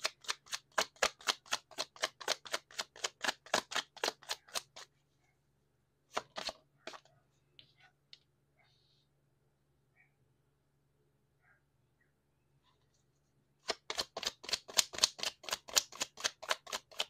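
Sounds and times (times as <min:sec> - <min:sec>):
card handling clicks and taps: 0:00.0 - 0:04.8, 0:06.1 - 0:07.1, 0:13.6 - 0:17.0
cards being shuffled: 0:00.0 - 0:04.9, 0:06.1 - 0:07.1, 0:13.6 - 0:17.0.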